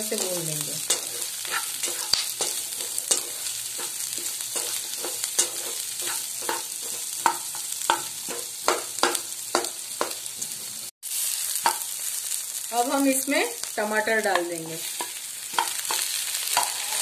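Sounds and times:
spatula scraping pan: 0.0 - 10.2, 14.7 - 17.0
vegetables sizzling in hot oil: 0.0 - 17.0.

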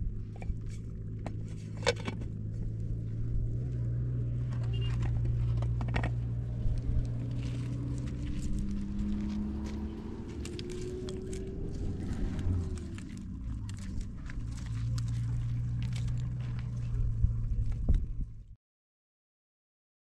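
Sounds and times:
steady low hum: 0.0 - 18.5.

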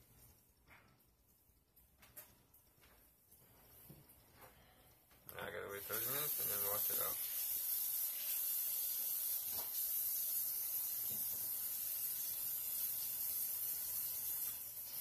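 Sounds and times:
steady high-pitched hiss: 0.0 - 15.0.

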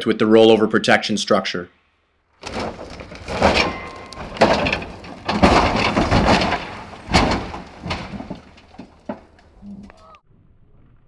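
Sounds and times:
rumbling: 2.2 - 10.2
truck crashing into ground: 2.4 - 9.6.

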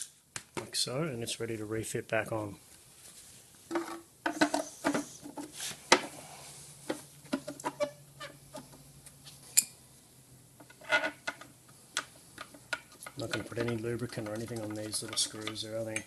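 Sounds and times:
brush scrubbing plastic: 13.2 - 15.7.

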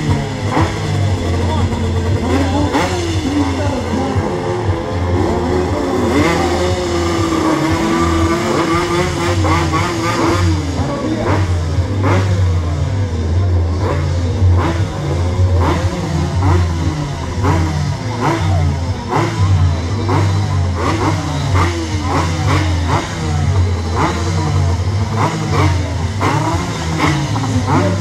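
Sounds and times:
motorcycle engines revving: 0.0 - 28.0.

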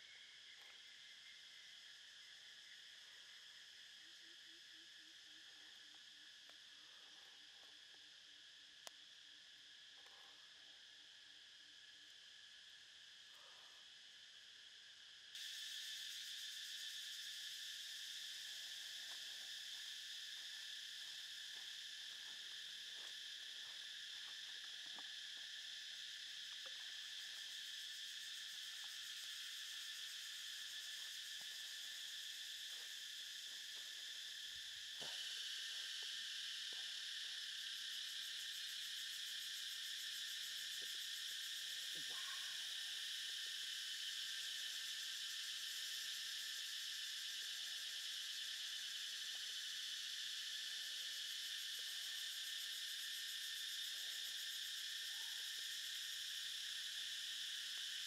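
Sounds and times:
insect chorus drone: 0.0 - 58.0.

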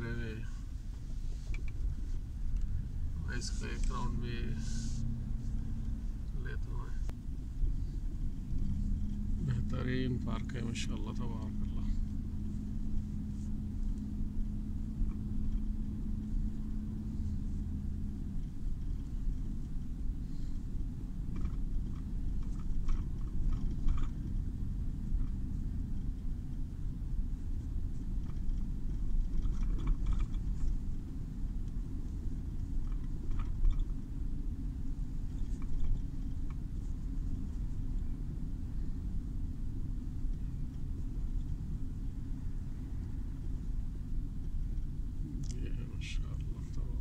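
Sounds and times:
car engine and tyres rumbling: 0.0 - 47.0
faint clicks and rustles: 0.0 - 47.0
steady hum: 0.0 - 47.0.

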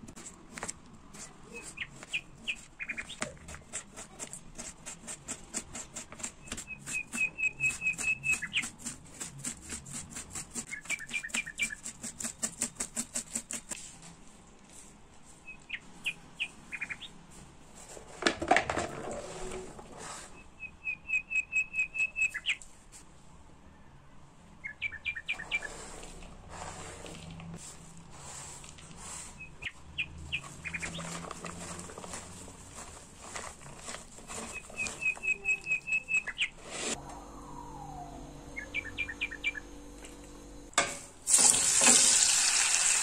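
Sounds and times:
small bird chirping: 1.4 - 3.4, 6.4 - 8.7, 10.7 - 12.0, 15.4 - 17.2, 20.4 - 22.6, 24.6 - 25.7, 29.4 - 31.1, 34.5 - 36.6, 37.4 - 40.7
scrape or rustle: 8.8 - 15.6, 17.3 - 20.5, 25.3 - 37.0.

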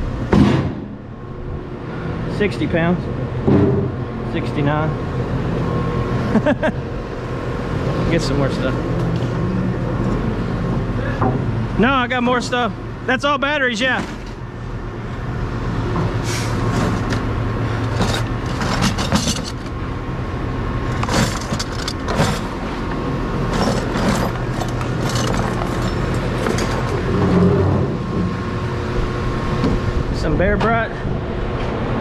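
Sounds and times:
machinery hum: 0.0 - 32.0
scrap metal clanking: 16.0 - 19.8, 20.9 - 22.8, 23.4 - 28.4.

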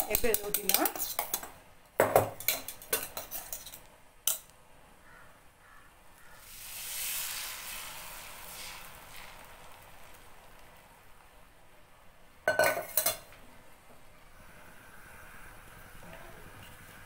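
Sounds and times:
metal spoon clattering in bowl: 0.0 - 1.5, 2.2 - 4.4
egg sizzling in frying pan: 6.2 - 13.4.

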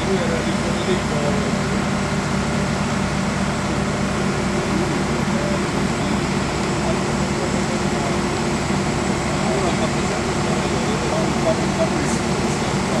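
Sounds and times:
machinery drone: 0.0 - 13.0.

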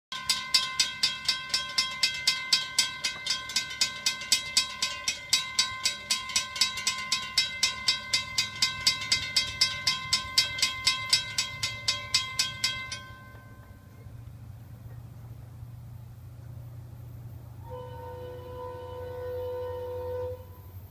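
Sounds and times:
railroad crossing bell ringing: 0.1 - 14.6
low steady hum: 0.2 - 20.9.

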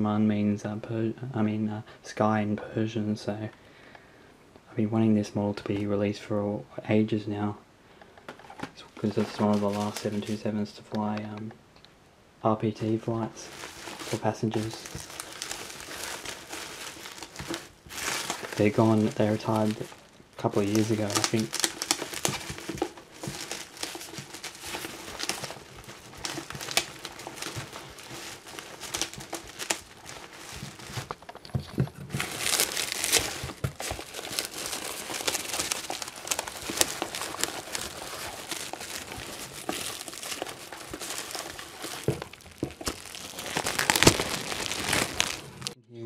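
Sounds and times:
bubble wrap and cardboard crinkling: 8.3 - 10.6, 12.8 - 45.8.

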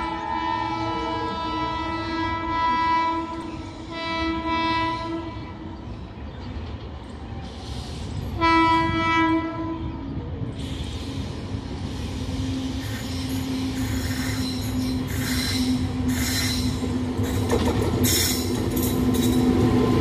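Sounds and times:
locomotive air horn blasts: 0.0 - 5.6, 8.4 - 10.0
low rumble of train: 0.0 - 20.0.

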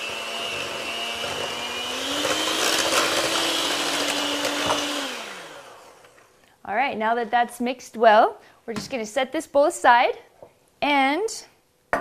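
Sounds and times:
electric hand mixer running: 0.0 - 6.2.

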